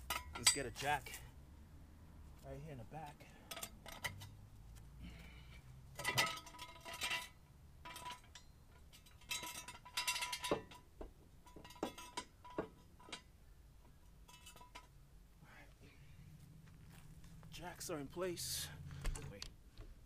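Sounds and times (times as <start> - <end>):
metal clinking and rattling: 0.0 - 1.2, 3.4 - 4.4, 5.5 - 13.3, 13.9 - 15.0.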